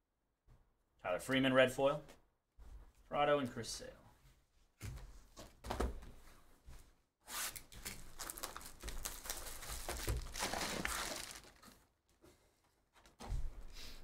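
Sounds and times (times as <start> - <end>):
plastic wrap tearing and crinkling: 7.3 - 11.9.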